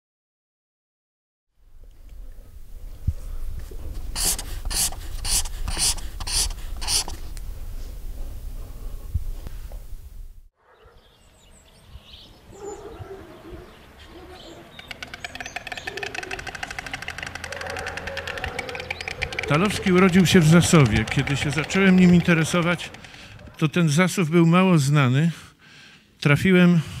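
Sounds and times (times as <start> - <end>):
stork bill clattering: 3.9 - 7.2, 14.2 - 24.0
marker scratching on paper: 4.0 - 7.2, 17.6 - 23.6.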